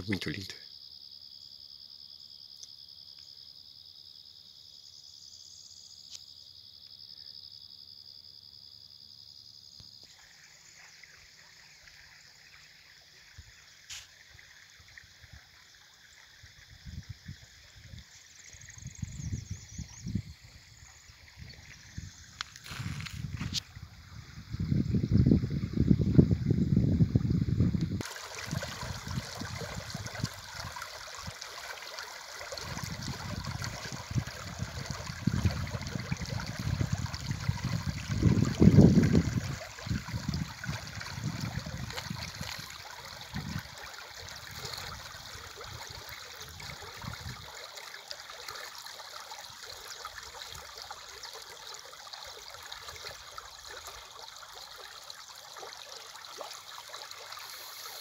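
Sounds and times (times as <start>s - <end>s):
river water flowing: 28.0s - 58.0s.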